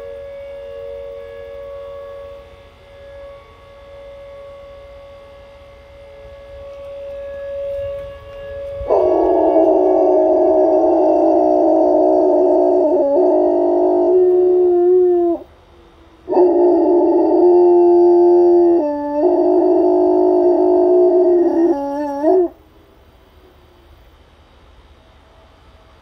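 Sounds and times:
dog howling: 7.7s - 15.5s, 16.3s - 22.6s.

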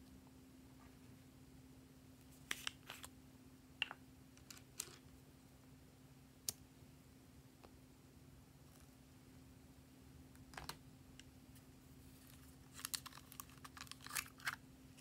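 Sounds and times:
plastic capsule clicks and taps: 3.8s - 5.0s.

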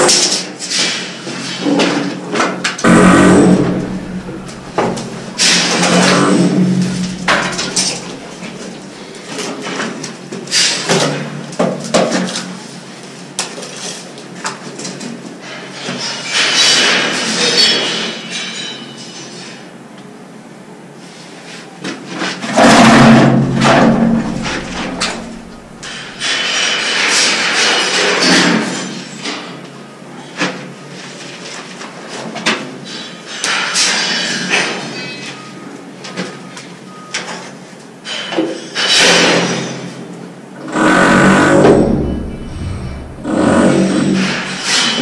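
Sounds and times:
plastic pipe scraping: 2.8s - 9.1s, 22.6s - 26.4s, 40.8s - 45.0s
knocking and scraping: 2.9s - 9.0s, 22.6s - 26.4s, 41.4s - 45.0s.

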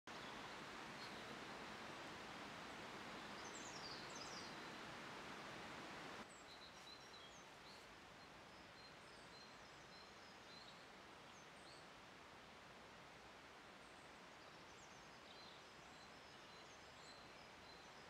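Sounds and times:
small birds chirping: 0.1s - 1.5s, 2.7s - 11.8s
steady outdoor hiss: 0.1s - 18.0s.

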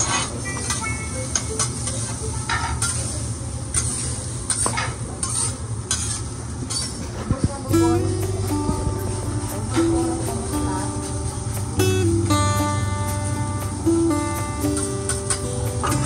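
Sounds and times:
metal spatulas scraping on griddle: 0.0s - 7.2s, 14.8s - 15.6s
steady sizzling: 0.0s - 16.0s.

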